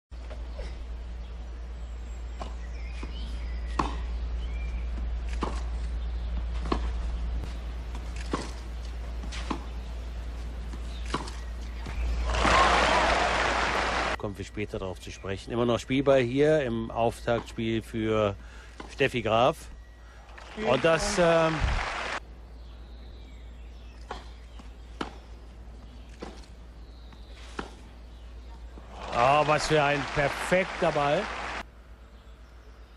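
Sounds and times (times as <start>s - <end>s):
tennis ball hit by racket: 2.4s - 4.1s.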